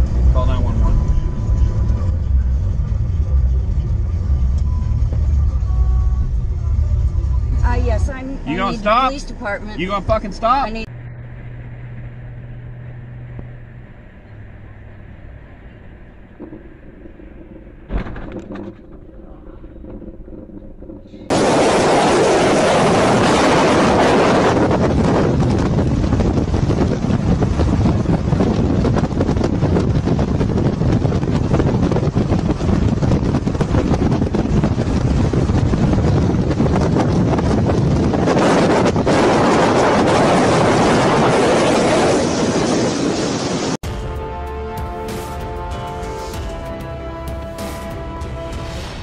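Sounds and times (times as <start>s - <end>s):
low engine hum: 0.0s - 49.0s
road and tyre noise: 0.0s - 49.0s
wind buffeting microphone: 15.8s - 44.4s.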